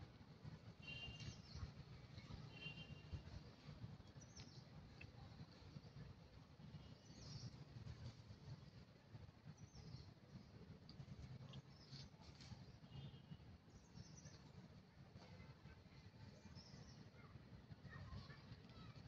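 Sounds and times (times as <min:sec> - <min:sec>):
faint bird chirp: 0:00.8 - 0:03.4, 0:04.0 - 0:06.0, 0:06.7 - 0:07.6, 0:11.4 - 0:14.6, 0:15.2 - 0:19.0.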